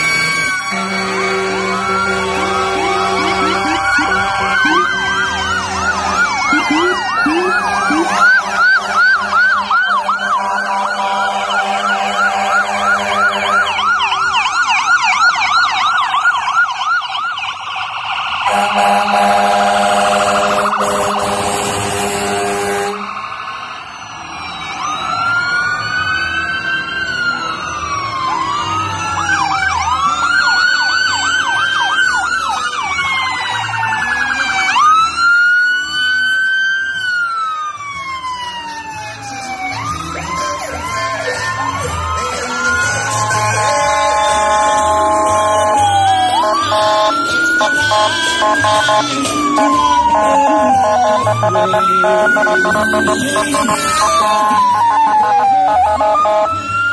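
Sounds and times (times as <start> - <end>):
emergency sirens: 0.0 - 56.9
long horn blasts: 0.6 - 6.0, 6.8 - 13.6, 18.5 - 23.1, 43.1 - 54.7, 55.7 - 56.5.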